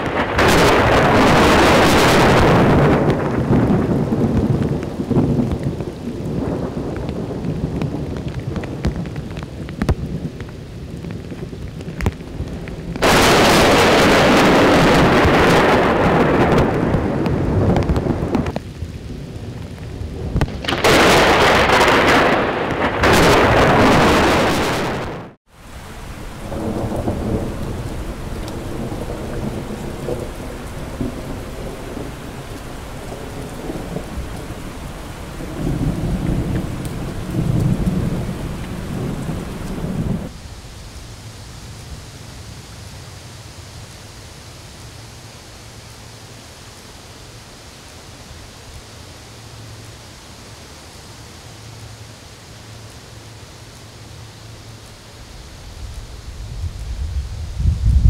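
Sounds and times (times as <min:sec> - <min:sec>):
thunder rolling: 0:00.0 - 0:25.4, 0:26.2 - 0:40.4, 0:55.8 - 0:58.0
heavy rain falling on water: 0:00.0 - 0:58.0.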